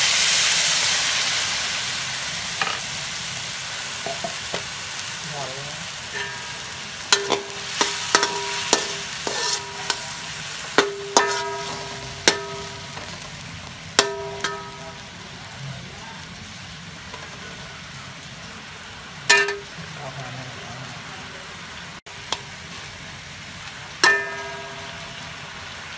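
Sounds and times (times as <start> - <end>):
food sizzling in a wok: 0.0 - 25.9
metal spatula clanking on wok: 4.0 - 4.6, 6.1 - 13.3, 14.0 - 15.2, 19.3 - 19.8, 24.0 - 25.4.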